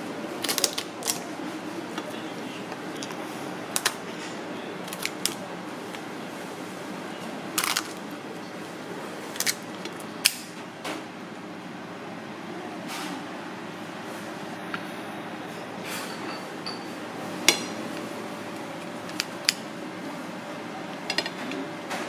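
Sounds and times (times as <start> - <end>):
steady background hum: 0.0 - 22.0
scissors crunching through crab shell: 0.4 - 1.2, 7.6 - 8.0, 9.3 - 10.4.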